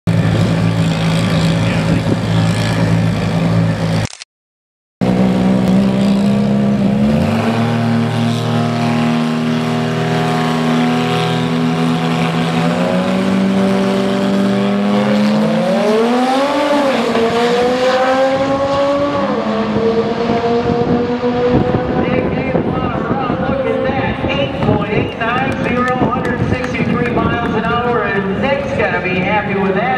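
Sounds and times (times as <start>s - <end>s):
drag racing car engines revving: 0.1s - 4.0s, 5.0s - 29.9s
cars accelerating with gear changes: 5.0s - 28.2s.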